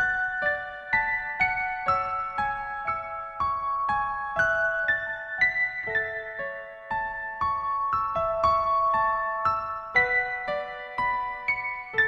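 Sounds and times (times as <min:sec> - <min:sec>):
piano music: 0:00.0 - 0:12.0.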